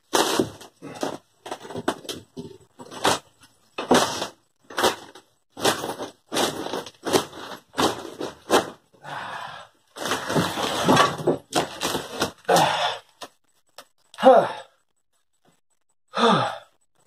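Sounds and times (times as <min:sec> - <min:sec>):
wood cracking and creaking: 0:00.0 - 0:09.0, 0:09.9 - 0:14.2.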